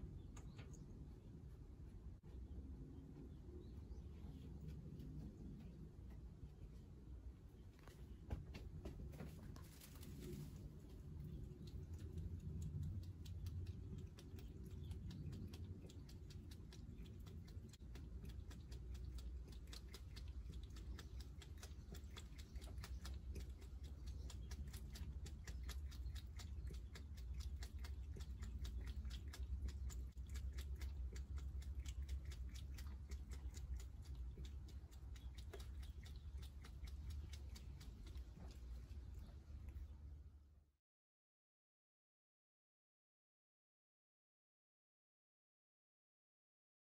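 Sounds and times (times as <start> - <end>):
steady low hum: 0.0 - 40.8
cat lapping water: 9.6 - 40.5.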